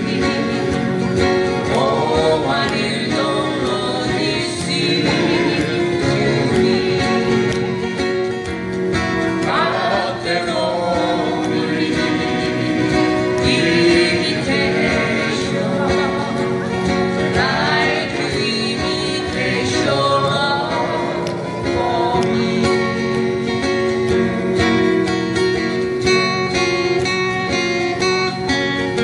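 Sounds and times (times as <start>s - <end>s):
person singing: 0.0s - 8.1s, 9.4s - 23.8s
acoustic guitars strummed: 0.0s - 29.0s.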